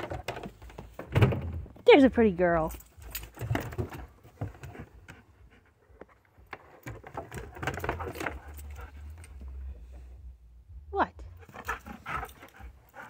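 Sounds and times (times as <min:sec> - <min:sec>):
paws tapping on wooden steps: 0:00.0 - 0:01.8, 0:03.1 - 0:09.6, 0:11.4 - 0:13.0
dog collar tags jingling: 0:02.6 - 0:03.5.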